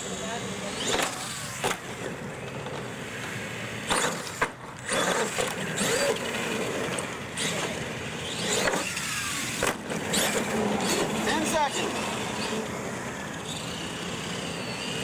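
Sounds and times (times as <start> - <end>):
toy truck motor and tyres: 0.0 - 15.0.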